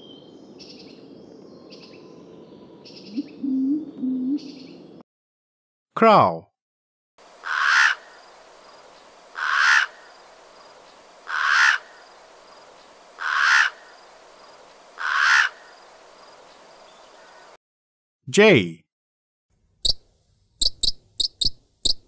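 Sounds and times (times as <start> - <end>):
background hiss: 7.2 - 17.6
crow cawing: 7.4 - 8.2, 9.3 - 10.2, 11.2 - 12.0, 13.2 - 14.0, 15.0 - 15.8.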